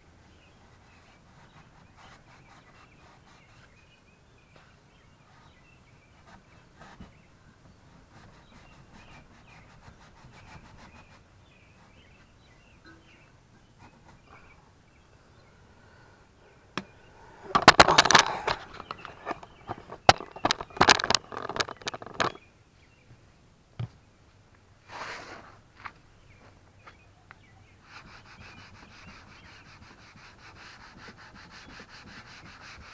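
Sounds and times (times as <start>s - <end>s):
bird chirps: 0.3s - 23.2s
camera handling knocks and rustling: 17.6s - 22.4s.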